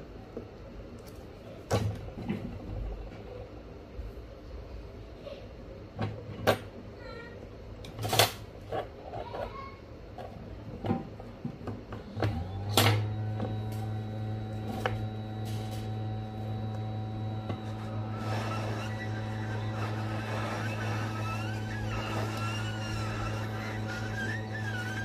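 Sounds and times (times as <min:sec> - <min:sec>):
hot air blower humming: 0:11.9 - 0:25.0.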